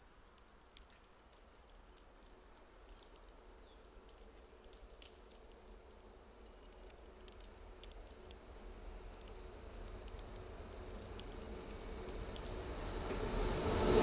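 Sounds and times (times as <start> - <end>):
small high ticks: 0.0 - 13.5
rain dripping: 0.0 - 14.0
distant freight train rumble and whine: 10.6 - 14.0.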